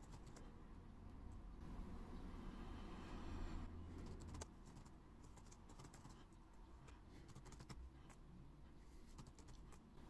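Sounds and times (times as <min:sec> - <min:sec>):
faint keyboard typing: 0:00.0 - 0:00.5, 0:04.0 - 0:08.2, 0:09.1 - 0:09.9.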